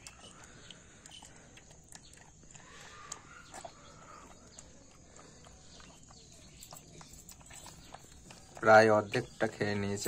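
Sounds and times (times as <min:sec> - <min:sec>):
puppy lapping and smacking food: 0:00.0 - 0:09.8.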